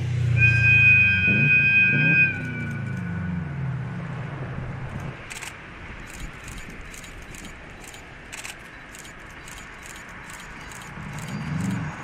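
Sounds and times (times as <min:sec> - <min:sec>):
low engine hum: 0:00.0 - 0:12.0
railcar rumbling: 0:00.0 - 0:12.0
sharp wheel clicks: 0:04.9 - 0:12.0.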